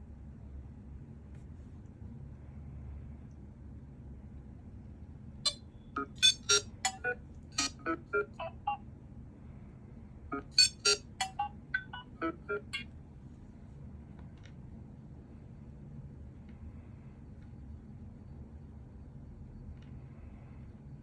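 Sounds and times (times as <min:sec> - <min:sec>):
electronic ringtone bleeps: 0:06.0 - 0:08.8, 0:10.3 - 0:12.8.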